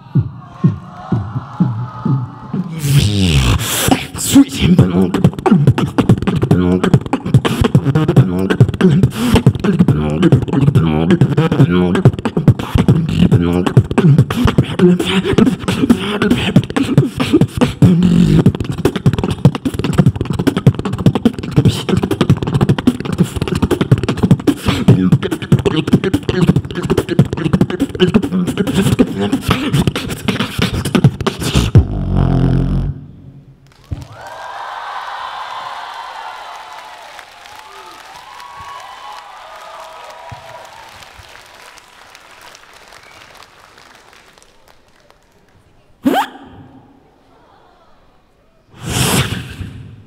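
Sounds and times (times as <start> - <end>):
crowd cheering: 0.0 - 2.9, 33.7 - 45.7
person beatboxing through microphone: 0.0 - 33.2, 46.0 - 47.0, 48.7 - 50.0.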